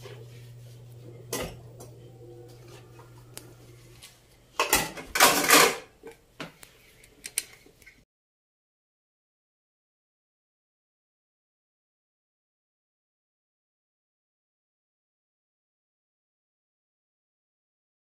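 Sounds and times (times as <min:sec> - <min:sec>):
steady low hum: 0:00.0 - 0:04.5
dishes and cutlery clattering: 0:04.6 - 0:06.0.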